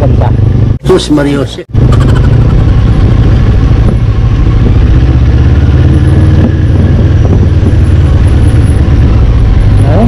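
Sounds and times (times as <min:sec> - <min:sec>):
motorcycle engine running: 0:00.0 - 0:10.0
wind buffeting microphone: 0:01.7 - 0:10.0.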